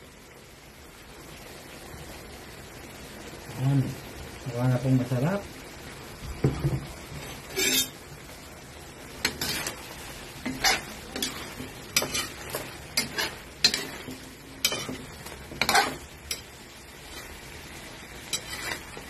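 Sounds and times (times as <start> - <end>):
frying sauce sizzling: 0.0 - 19.0
spatula scraping metal pan: 7.2 - 8.0, 9.2 - 17.5, 18.1 - 19.0.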